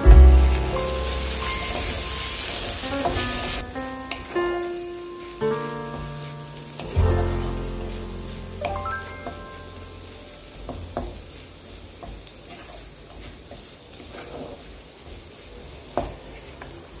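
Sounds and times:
greens sizzling in a pan: 0:00.0 - 0:17.0
wooden spatula scraping a pan: 0:12.0 - 0:14.8.

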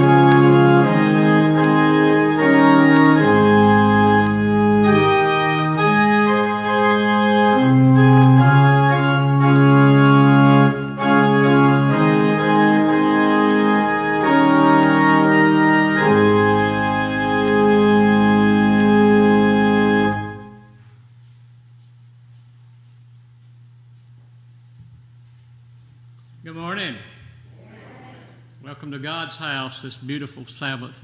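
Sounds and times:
pipe organ chords: 0:00.0 - 0:21.0.

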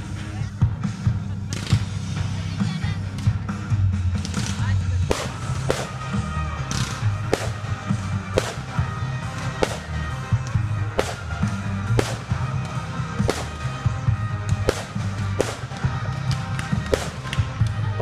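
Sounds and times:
fireworks bangs and crackles: 0:04.1 - 0:18.0
loud music with heavy bass: 0:05.0 - 0:18.0.

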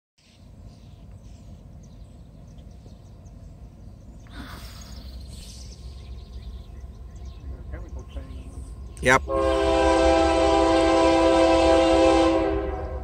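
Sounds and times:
faint bird chirps: 0:00.2 - 0:09.1
low outdoor rumble: 0:00.2 - 0:13.0.

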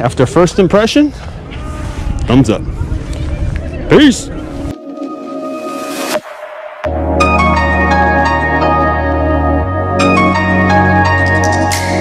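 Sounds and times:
ambient music with deep bass: 0:03.6 - 0:12.0.

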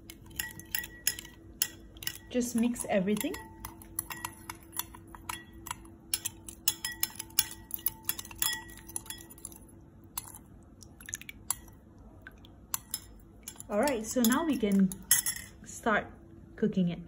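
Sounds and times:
metal spoon clinking in glass bowl: 0:00.0 - 0:09.6, 0:12.7 - 0:15.6.

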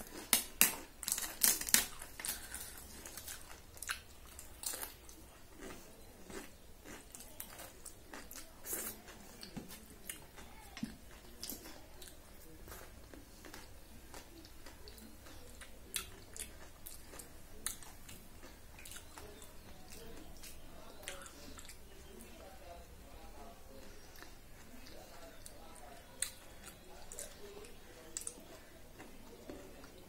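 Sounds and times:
soft chewing: 0:00.0 - 0:30.0.

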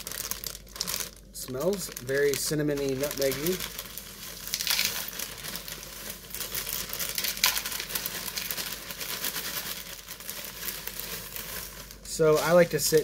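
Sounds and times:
plastic bag liner crinkling: 0:00.0 - 0:13.0
cereal pouring into a bowl: 0:01.6 - 0:13.0.

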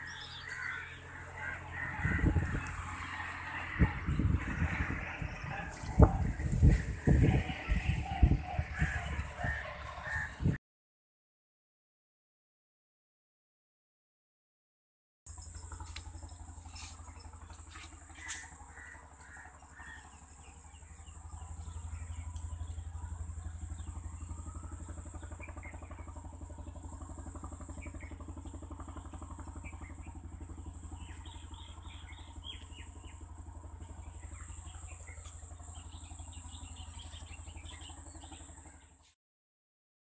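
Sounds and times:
small birds chirping: 0:00.0 - 0:02.9, 0:15.3 - 0:39.1
low engine rumble: 0:00.0 - 0:10.6, 0:15.3 - 0:39.2.

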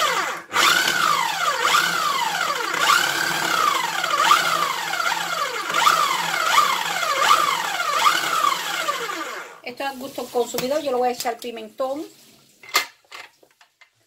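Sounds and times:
food processor motor pulsing: 0:00.0 - 0:09.6.

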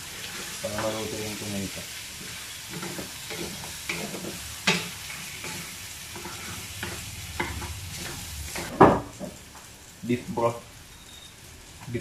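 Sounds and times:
meat sizzling in a wok: 0:00.0 - 0:12.0
spatula scraping a pan: 0:00.1 - 0:01.1, 0:02.0 - 0:08.8.

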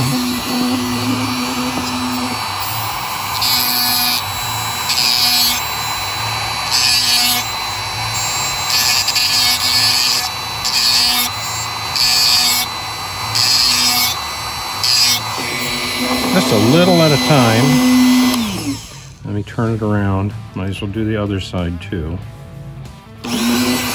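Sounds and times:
grinding stone on steel: 0:00.0 - 0:19.0
rotary tool whirring: 0:00.0 - 0:19.2, 0:23.2 - 0:23.9.

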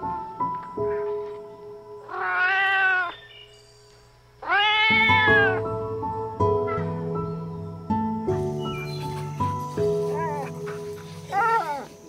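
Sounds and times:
background music of held notes: 0:00.0 - 0:12.0
cat meowing: 0:02.1 - 0:03.3, 0:04.4 - 0:05.6.

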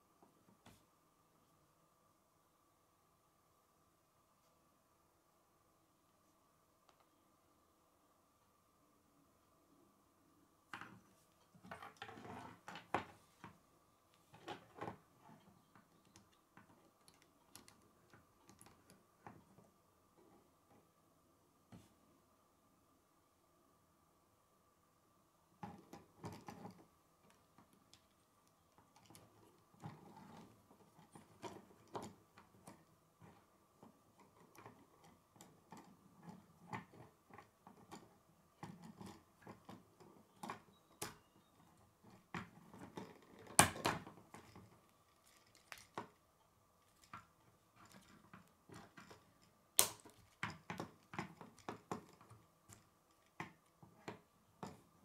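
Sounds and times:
sharp plastic snaps: 0:49.8 - 0:50.2.

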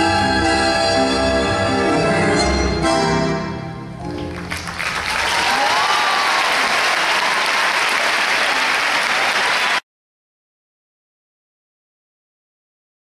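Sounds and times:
tango music: 0:00.0 - 0:05.0
audience applauding: 0:04.1 - 0:09.8.

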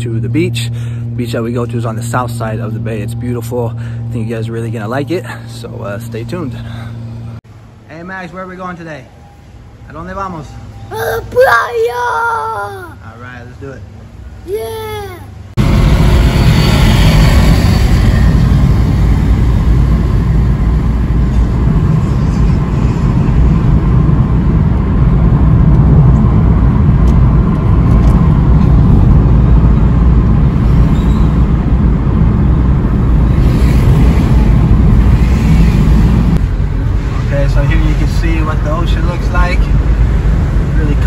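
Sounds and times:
car road noise: 0:15.3 - 0:41.0.

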